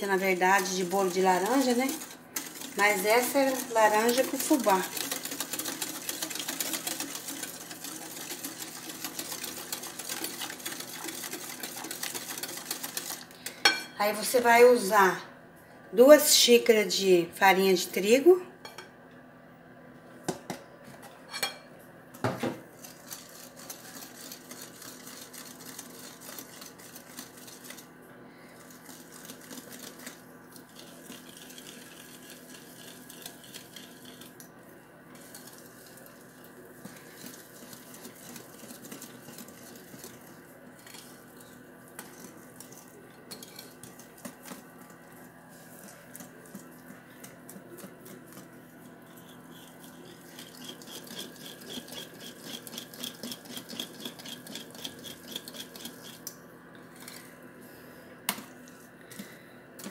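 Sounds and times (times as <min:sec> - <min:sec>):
whisk scraping glass bowl: 0:00.0 - 0:13.8, 0:22.7 - 0:27.9, 0:28.6 - 0:34.4, 0:35.1 - 0:56.3.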